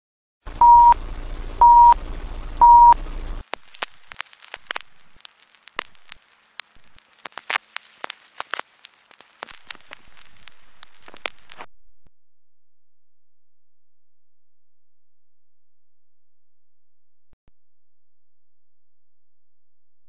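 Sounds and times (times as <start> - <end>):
low hum: 0.5 - 5.2
short steady beeps: 0.6 - 1.0, 1.6 - 2.0, 2.6 - 3.0
film crackles and pops: 0.9 - 11.7.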